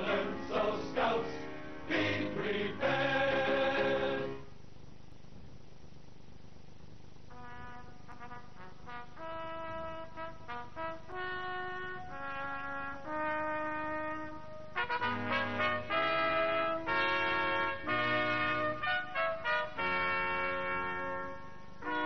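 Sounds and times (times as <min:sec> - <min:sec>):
brass instrument slow melody: 0:07.3 - 0:22.0.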